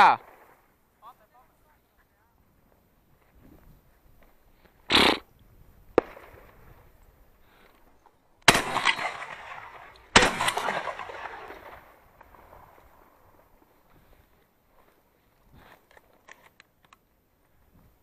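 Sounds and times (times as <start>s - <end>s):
shotgun shots echoing: 0.0s - 0.8s, 5.9s - 6.6s, 8.4s - 12.8s.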